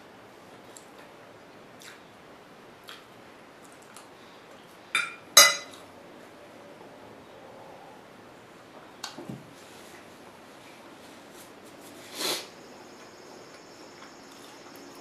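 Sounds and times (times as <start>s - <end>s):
fork clinking on ceramic plate: 5.0s - 5.8s.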